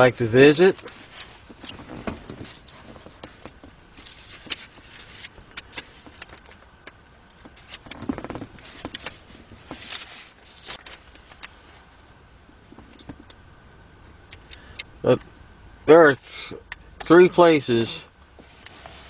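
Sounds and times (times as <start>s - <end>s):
paper pages rustling: 0.8s - 6.6s, 7.7s - 11.4s.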